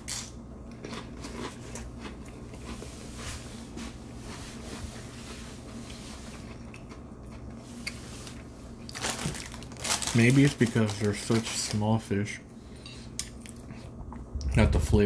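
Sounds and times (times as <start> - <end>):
low hum: 0.0 - 15.0
quiet chewing: 5.8 - 9.0.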